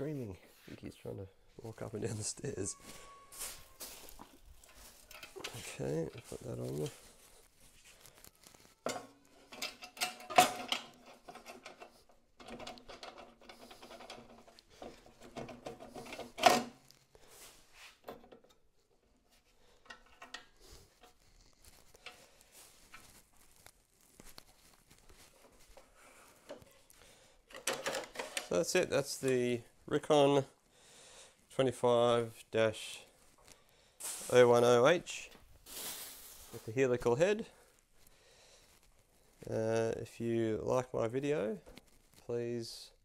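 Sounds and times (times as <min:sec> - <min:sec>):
metal parts clanking and rattling: 0:04.6 - 0:06.3, 0:08.9 - 0:16.8, 0:27.5 - 0:28.5.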